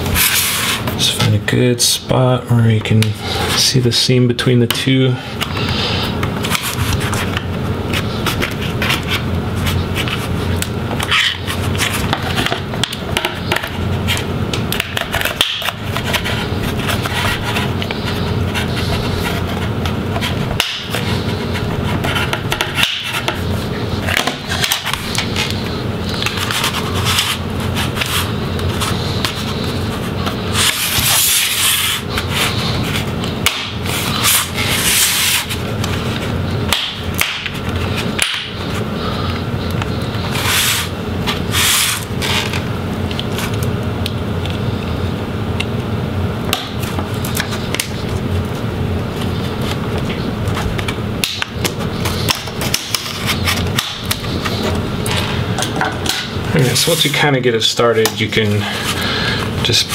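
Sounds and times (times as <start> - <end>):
sharp hissing scrapes: 33.8 - 35.6, 40.2 - 40.9, 41.5 - 42.5.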